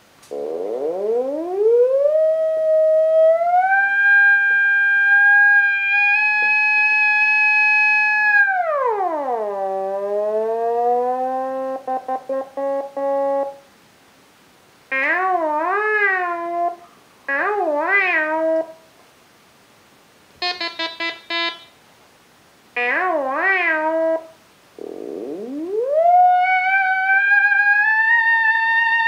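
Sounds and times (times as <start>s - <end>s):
gliding synth tone: 24.8s - 29.0s.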